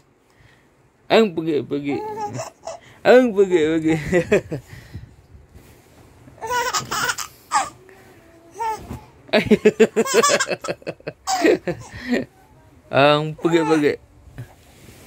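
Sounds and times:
baby babbling and giggling: 1.9 - 2.8, 6.4 - 9.3, 13.2 - 14.0.

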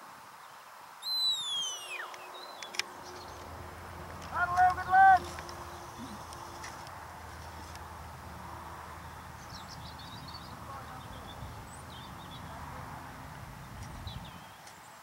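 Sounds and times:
small bird twittering: 1.0 - 3.5
wind on microphone: 8.2 - 14.6.

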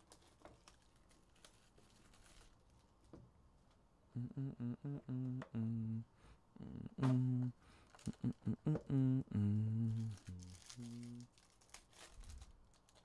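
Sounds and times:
man humming a tune: 4.1 - 11.3
packaging clicks and rustling: 10.2 - 13.0.

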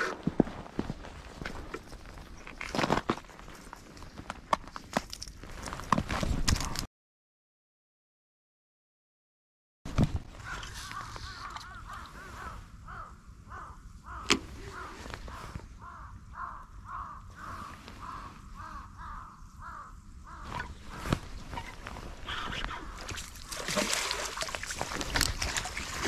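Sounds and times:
crows cawing: 10.4 - 23.6.

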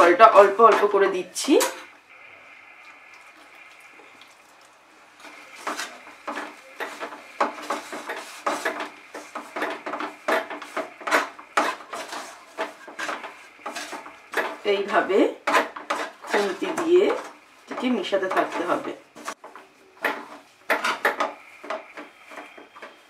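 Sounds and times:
faint steady hiss: 0.0 - 23.0
spatula scraping dough in metal pan: 5.2 - 23.0.

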